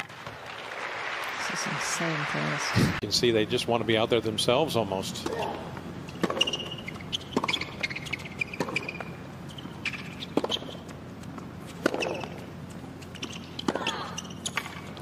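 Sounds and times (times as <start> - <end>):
shoes squeaking on court: 6.0 - 15.0
racket striking tennis ball: 6.1 - 9.1, 9.8 - 10.9, 11.7 - 12.4.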